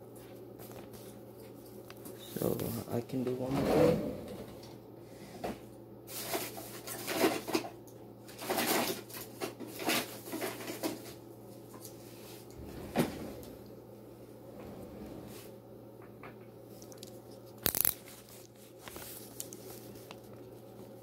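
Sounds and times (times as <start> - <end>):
faint steady hum: 0.0 - 21.0
rustling and handling noises: 5.4 - 13.7, 16.7 - 21.0.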